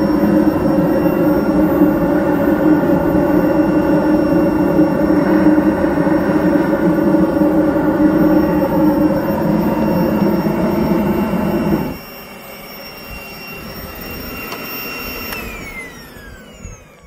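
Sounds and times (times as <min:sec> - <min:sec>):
forge flame rushing: 0:00.0 - 0:12.0
electric blower whining: 0:00.0 - 0:17.0.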